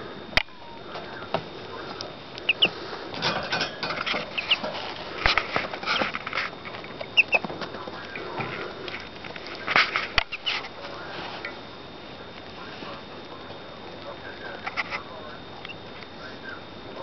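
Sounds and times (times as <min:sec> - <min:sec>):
ducklings peeping: 0:00.0 - 0:11.5
rustling on paper: 0:04.1 - 0:11.5.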